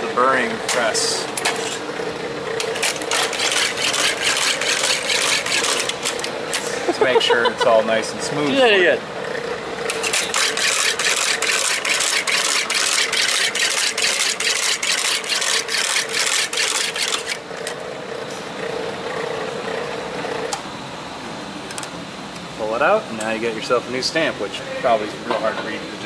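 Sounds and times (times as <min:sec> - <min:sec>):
electric motor humming: 0:00.0 - 0:20.6.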